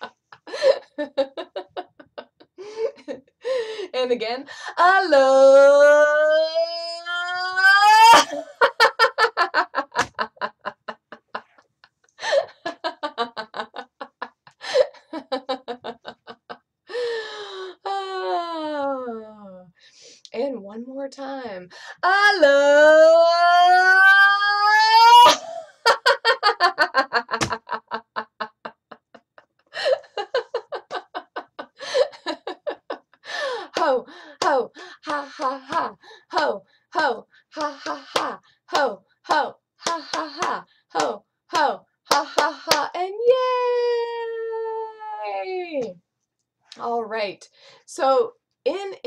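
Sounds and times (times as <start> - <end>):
woman laughing: 0.0 - 3.2, 8.1 - 17.1, 25.2 - 38.3
woman laughing out loud: 8.0 - 11.6, 24.8 - 34.0.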